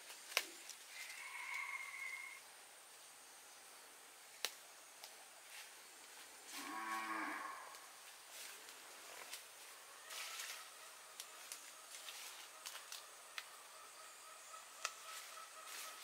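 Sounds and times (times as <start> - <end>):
cow mooing: 6.5 - 7.8.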